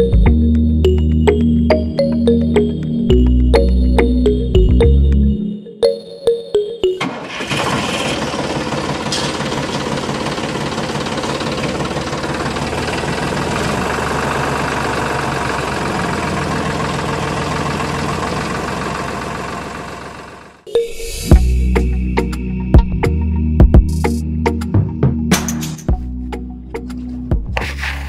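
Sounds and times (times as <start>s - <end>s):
tractor engine running: 6.8s - 20.7s.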